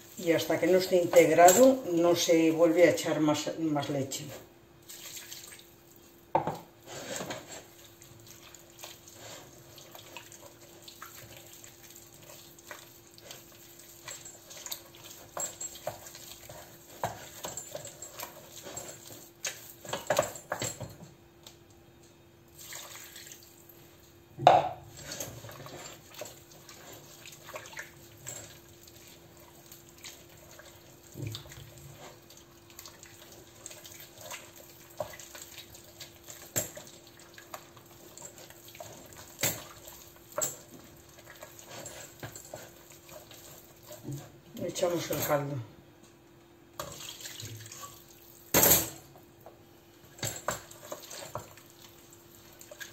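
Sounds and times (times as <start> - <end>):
wooden spoon scraping a pot: 6.7 - 8.0, 8.8 - 11.4, 12.1 - 20.3, 37.5 - 45.1, 50.4 - 51.6.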